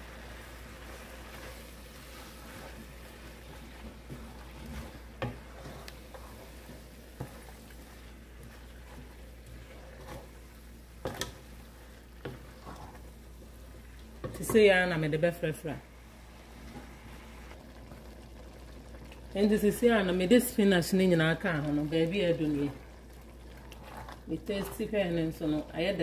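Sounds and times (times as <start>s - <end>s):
squishing of spinach leaves: 0.0s - 14.2s
low steady hum: 0.0s - 26.0s.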